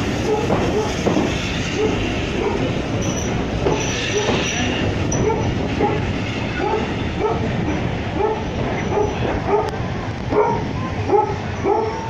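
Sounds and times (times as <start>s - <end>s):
railway coaches rolling past: 0.0s - 12.0s
dog barking: 0.2s - 1.0s, 1.8s - 2.7s, 5.2s - 7.5s, 8.2s - 12.0s.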